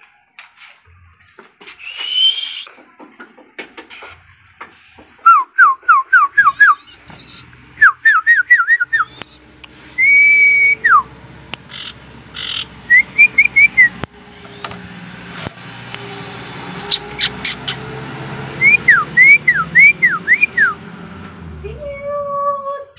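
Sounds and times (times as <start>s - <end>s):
songbird whistling: 1.8s - 2.8s, 5.1s - 14.7s, 16.8s - 17.9s, 18.6s - 20.8s
sharp clicks: 8.9s - 9.8s, 11.5s - 12.0s.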